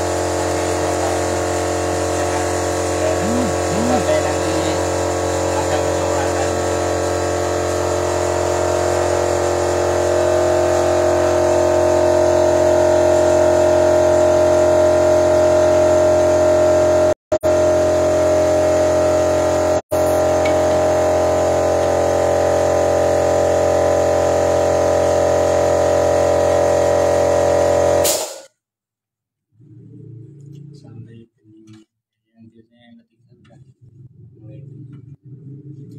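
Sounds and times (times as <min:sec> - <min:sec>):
car engine idling: 0:00.0 - 0:27.9.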